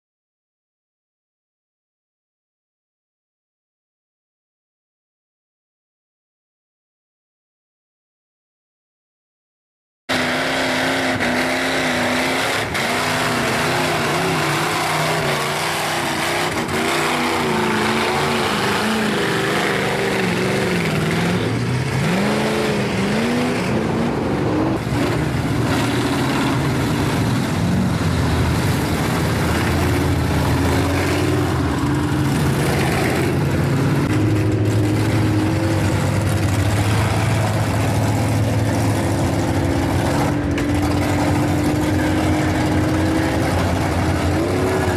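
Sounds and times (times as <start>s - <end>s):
truck engines revving: 10.1s - 44.9s.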